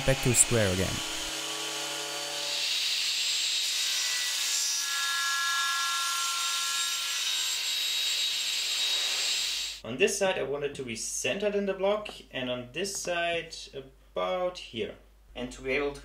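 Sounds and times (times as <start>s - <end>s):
thickness planer humming: 0.0s - 2.4s
table saw cutting wood: 0.0s - 9.8s.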